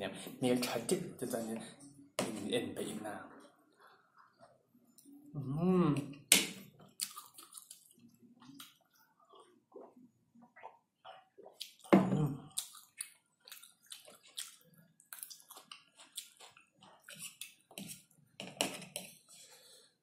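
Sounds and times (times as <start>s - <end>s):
chewing and wet mouth sounds: 6.1s - 18.2s.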